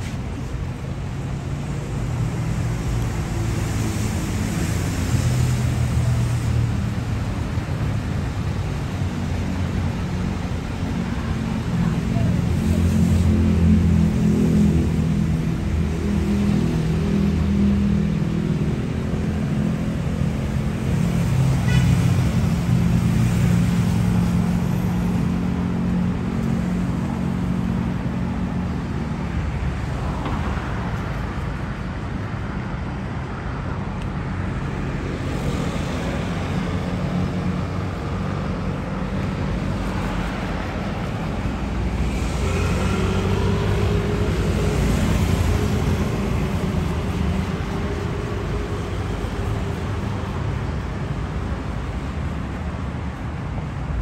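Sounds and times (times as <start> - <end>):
cars passing: 0.0 - 54.0
vehicle engines humming: 0.0 - 54.0
vehicle pulling away: 42.0 - 47.8.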